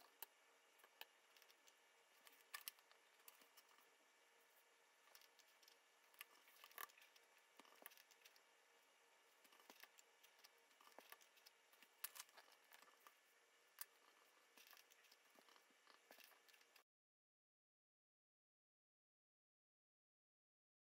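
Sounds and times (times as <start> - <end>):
small clicks: 0.0 - 3.9.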